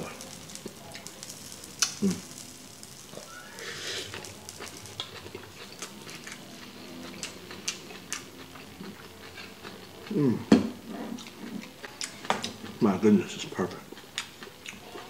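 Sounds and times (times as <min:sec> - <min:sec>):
person chewing food: 0:03.4 - 0:10.5, 0:11.1 - 0:12.8, 0:13.7 - 0:15.0.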